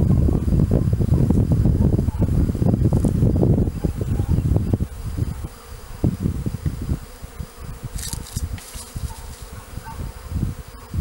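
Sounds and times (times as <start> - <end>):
bees buzzing: 0.0 - 11.0
brief rustle: 7.9 - 9.5.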